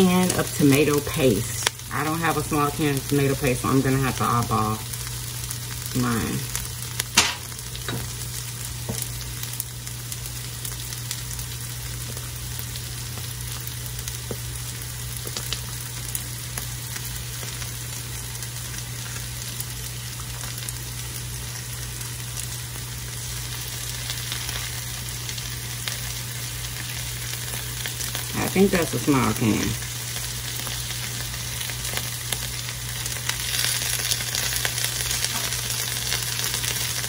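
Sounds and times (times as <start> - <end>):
onions sizzling in oil: 0.0 - 37.0.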